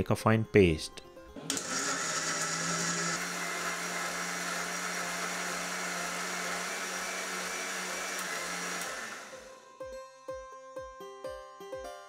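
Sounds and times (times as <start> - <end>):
mixer grinder running: 1.4 - 9.6.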